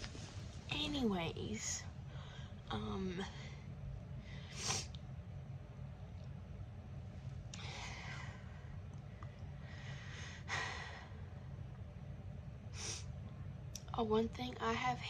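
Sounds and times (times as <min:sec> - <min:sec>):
steady low background hum: 0:00.0 - 0:15.0
girl breathing: 0:07.6 - 0:11.5.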